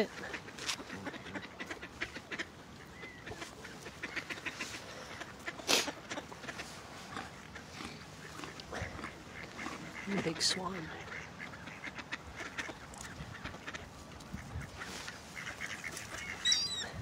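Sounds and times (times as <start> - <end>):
ducks quacking: 0.0 - 17.0.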